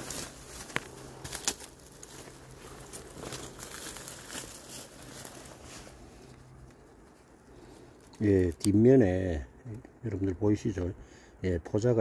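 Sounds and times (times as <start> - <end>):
rustling of dry leaves: 0.0 - 9.5
low steady hum: 0.0 - 12.0.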